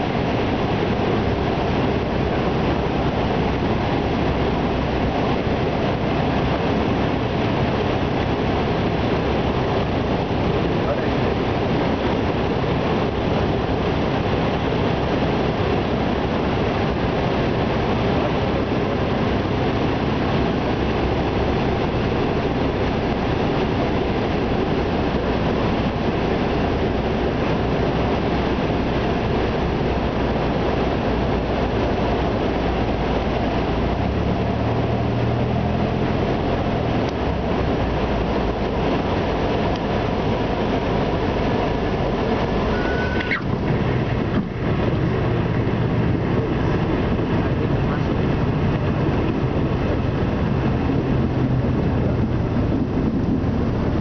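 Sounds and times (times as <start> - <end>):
aircraft engine and propeller drone: 0.0 - 54.0
wind rush: 0.0 - 54.0.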